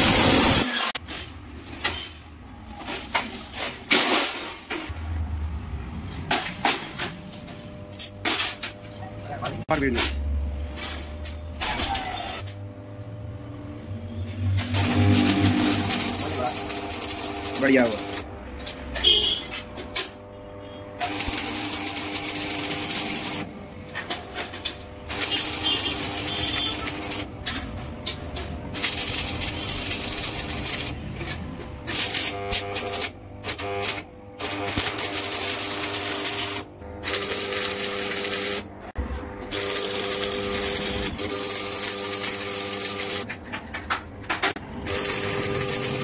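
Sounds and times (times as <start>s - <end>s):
welding arc crackling: 0.0s - 1.0s, 14.3s - 43.5s, 44.4s - 46.0s.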